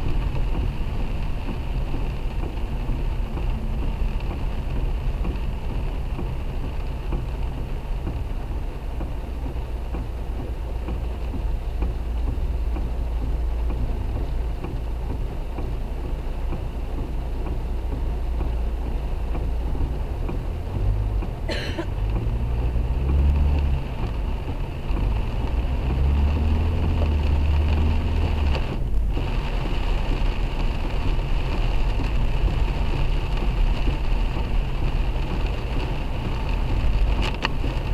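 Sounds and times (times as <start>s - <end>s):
car engine and tyres rumbling: 0.0s - 37.9s
rain on car: 0.0s - 37.9s.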